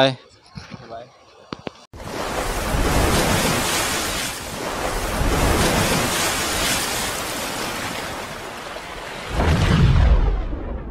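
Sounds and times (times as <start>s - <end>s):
rushing water: 2.0s - 10.5s.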